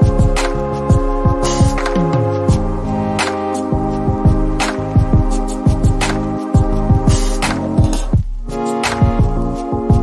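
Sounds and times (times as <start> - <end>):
held synth chords: 0.0 - 10.0.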